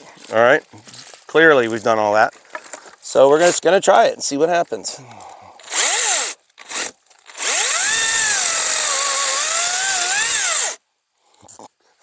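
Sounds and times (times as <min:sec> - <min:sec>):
electric chainsaw cutting wood: 0:05.6 - 0:10.8.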